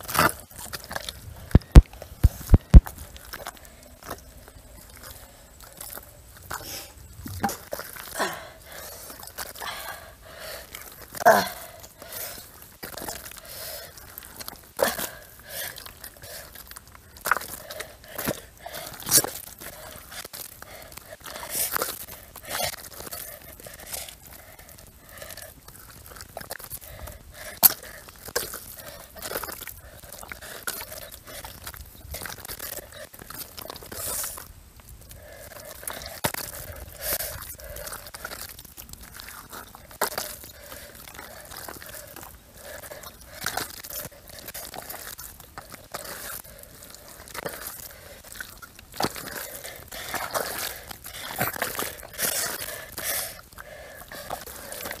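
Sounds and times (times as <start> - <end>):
wet mud squelching: 0.0 - 55.0.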